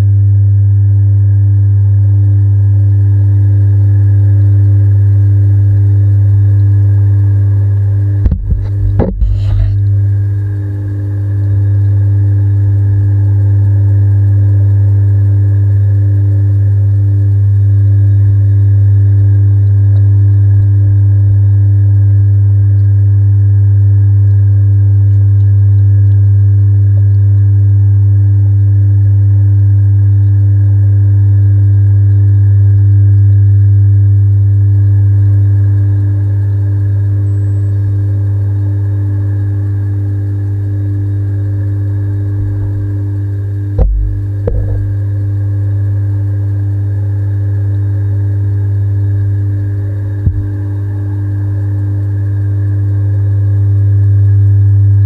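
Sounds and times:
machine humming underwater: 0.0s - 55.0s.

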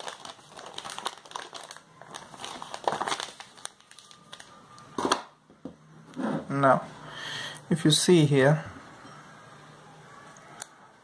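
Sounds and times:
paper rustling and crinkling: 0.0s - 5.2s.

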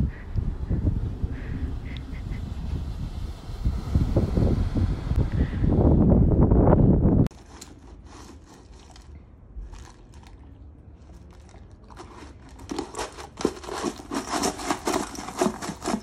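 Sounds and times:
wind noise: 0.0s - 8.3s
puppy crunching ice cubes: 7.3s - 16.0s
scraping in a metal bowl: 11.3s - 16.0s.

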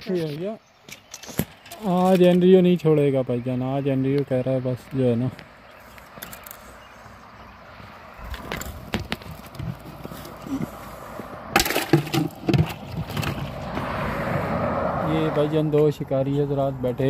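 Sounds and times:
footsteps crunching on gravel: 7.8s - 11.0s.

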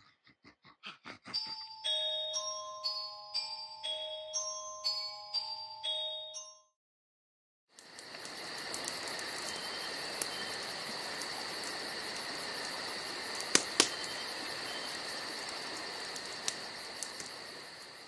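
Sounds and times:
crickets chirping: 7.8s - 18.0s
sharp snaps: 13.3s - 14.2s, 15.4s - 17.5s.

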